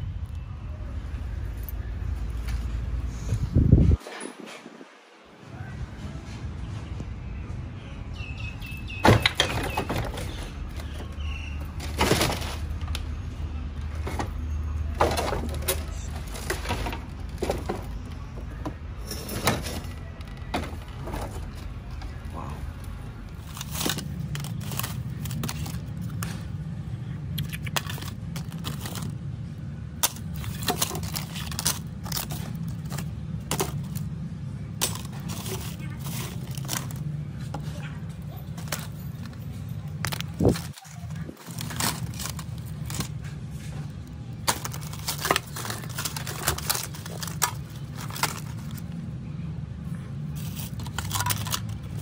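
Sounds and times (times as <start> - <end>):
small hard objects clicking and cracking: 23.3 - 26.6, 27.3 - 29.2, 29.9 - 34.1, 34.8 - 37.1, 38.4 - 43.3, 43.9 - 49.0, 50.4 - 52.0.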